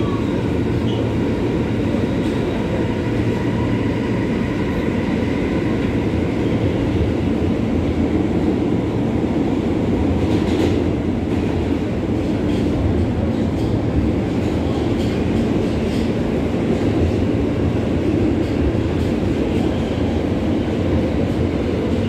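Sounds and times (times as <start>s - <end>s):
subway car wheels on rails: 0.0s - 22.0s.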